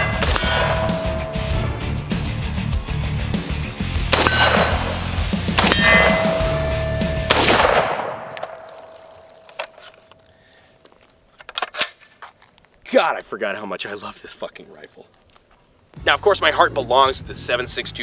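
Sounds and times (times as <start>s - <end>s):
rifle shots: 0.0s - 1.1s, 4.1s - 9.5s
steel target ringing: 0.0s - 1.8s, 4.2s - 9.5s.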